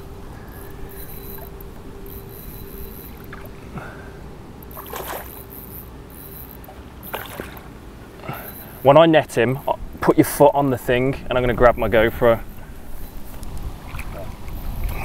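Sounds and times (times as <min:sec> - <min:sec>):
water splashing: 0:04.8 - 0:05.5, 0:06.6 - 0:07.8, 0:13.8 - 0:15.0.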